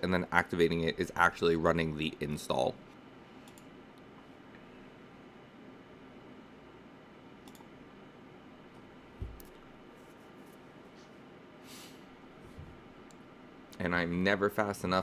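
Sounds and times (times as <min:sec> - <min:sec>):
computer mouse clicks: 0:03.4 - 0:03.7, 0:07.4 - 0:07.7.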